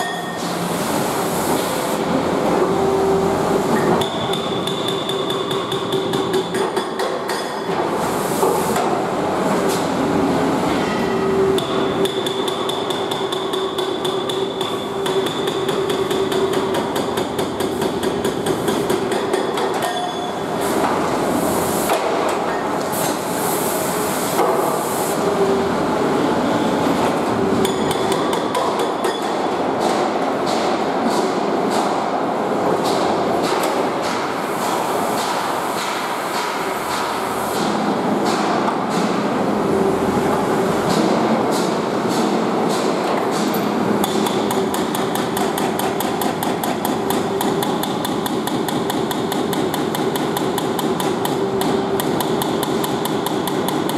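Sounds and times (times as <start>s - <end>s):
hydraulic breaker hammering brick: 3.8s - 7.8s, 11.6s - 20.4s, 27.6s - 31.9s, 40.9s - 53.9s.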